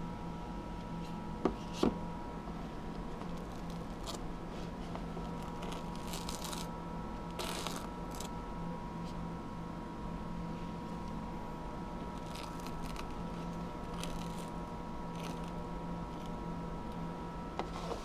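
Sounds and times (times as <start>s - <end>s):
steady electrical hum: 0.0s - 18.0s
rustling and scraping of small objects: 3.0s - 6.7s, 7.3s - 8.3s, 12.1s - 16.4s, 17.6s - 18.0s.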